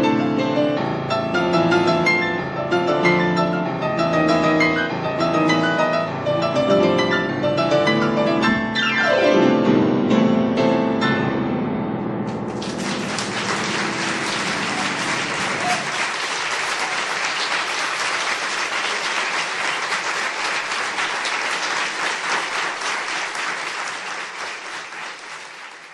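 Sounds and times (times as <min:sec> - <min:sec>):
audience applauding: 0:12.3 - 0:25.9.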